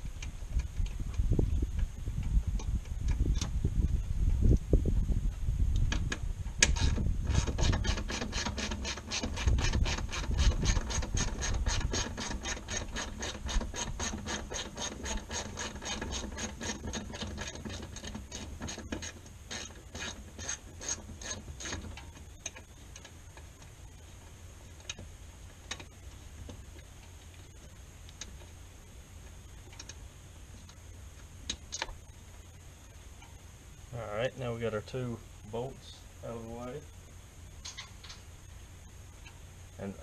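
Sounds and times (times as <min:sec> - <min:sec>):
hand ratchet clicking: 0:06.6 - 0:23.5.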